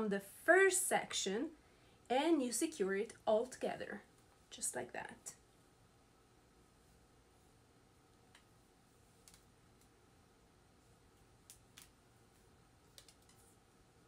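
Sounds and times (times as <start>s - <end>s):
faint clicks: 12.9s - 13.5s.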